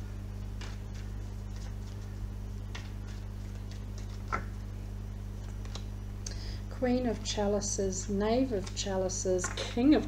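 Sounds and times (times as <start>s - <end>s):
steady low hum: 0.0s - 10.0s
cards being shuffled: 0.5s - 4.6s, 5.4s - 5.9s.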